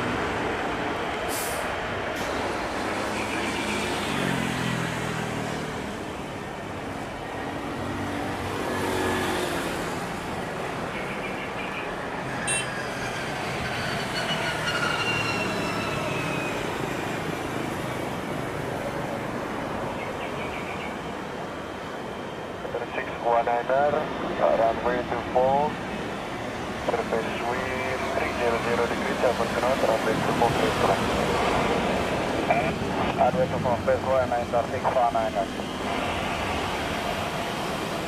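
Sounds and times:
jet engines on take-off run: 0.0s - 14.1s, 15.6s - 38.0s.

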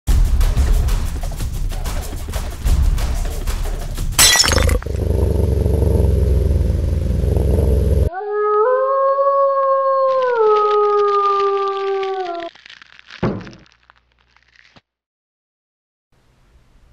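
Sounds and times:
low rumble: 4.8s - 8.1s
wolf howl: 8.0s - 12.5s.

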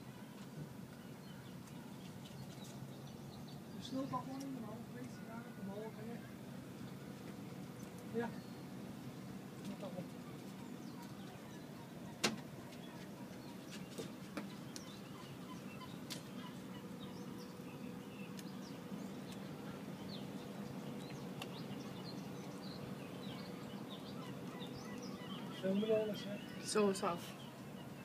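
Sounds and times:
steady low hum: 0.0s - 28.0s
faint bird chirps: 9.7s - 28.0s.

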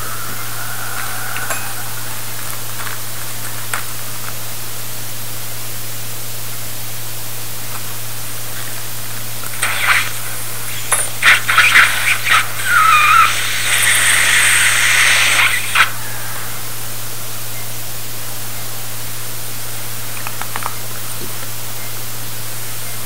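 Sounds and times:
suction tip slurping hiss: 8.3s - 17.0s.

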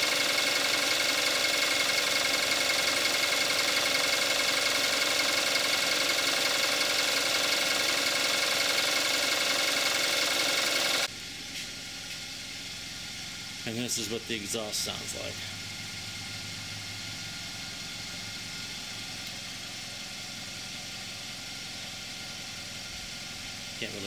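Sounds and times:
car engine idling with ticking clatter: 0.0s - 11.1s
distant engine running: 0.0s - 11.1s.

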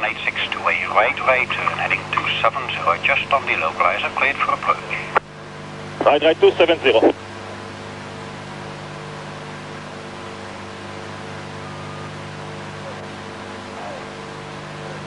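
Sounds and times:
tape hiss and electrical hum: 0.0s - 15.0s
faint tone: 11.4s - 13.0s.

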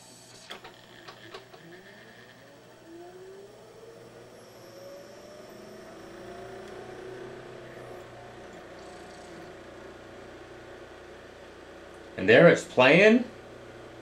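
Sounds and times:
spindle motor whine rising: 0.0s - 14.0s
disc tray clicks: 0.4s - 1.7s.

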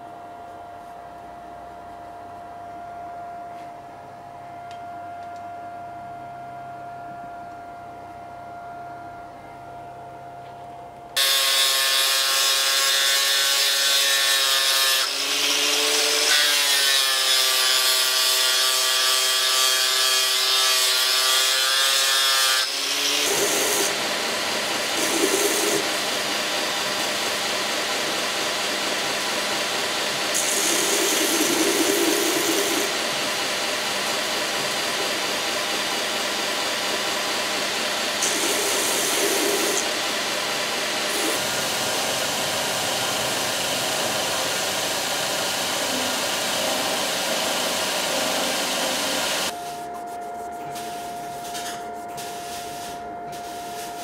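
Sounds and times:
belt grinder grinding metal: 11.2s - 35.3s, 36.8s - 49.5s
angle grinder sanding: 11.2s - 54.0s.

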